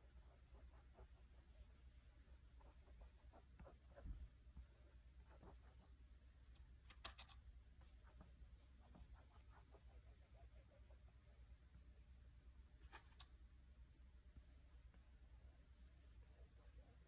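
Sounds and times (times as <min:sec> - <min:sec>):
paintbrush scratching on canvas: 0:00.0 - 0:06.1, 0:07.8 - 0:12.2, 0:14.5 - 0:17.0
brush tapping on canvas: 0:02.6 - 0:04.8.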